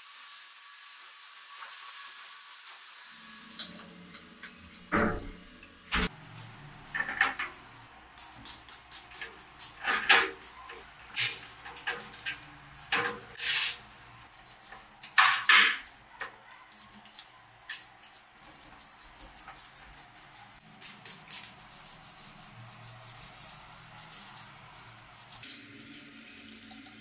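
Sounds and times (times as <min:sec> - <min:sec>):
spray bottle squirting: 0:08.2 - 0:25.4
tool scraping metal gears: 0:08.2 - 0:25.4.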